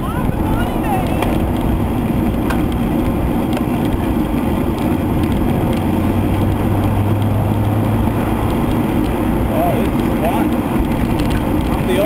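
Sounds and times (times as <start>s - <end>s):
road noise: 0.0s - 12.0s
wind rushing over microphone: 0.0s - 12.0s.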